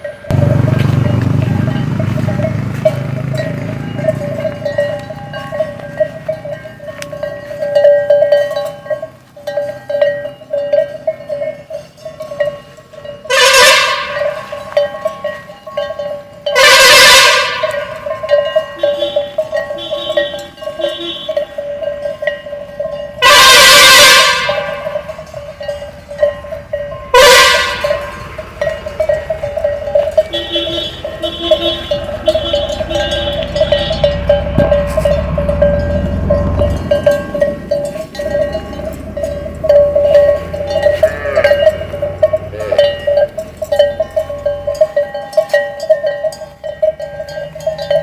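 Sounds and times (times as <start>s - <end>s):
cow bell clanking: 0.0s - 48.0s
road traffic passing: 0.0s - 48.0s.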